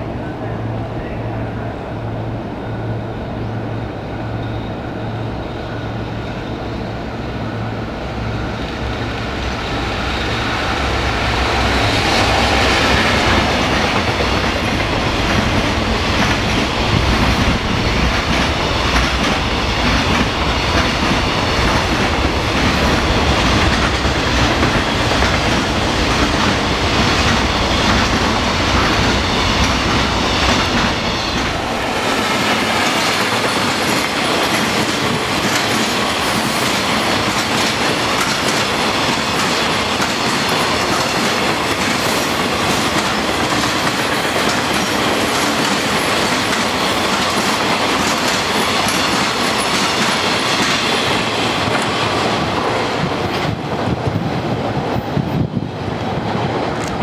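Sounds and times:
freight train rumbling: 0.0 - 57.0
wheels clacking over rail joints: 9.5 - 53.6.

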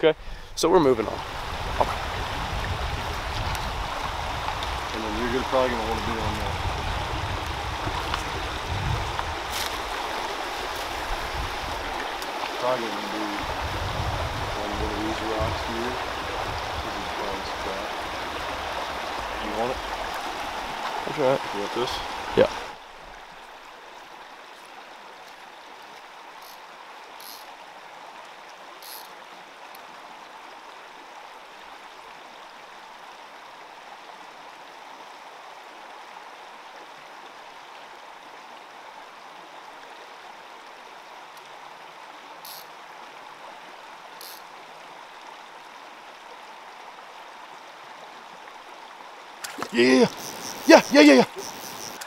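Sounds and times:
stream running over stones: 0.0 - 52.0
high-pitched ticks: 27.2 - 27.5, 28.8 - 29.1, 42.5 - 42.7, 44.2 - 44.4, 50.1 - 52.0.

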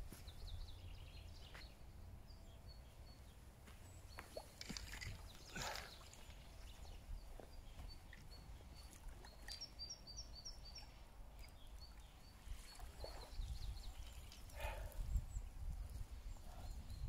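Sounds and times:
small bird chirping: 4.1 - 14.7.

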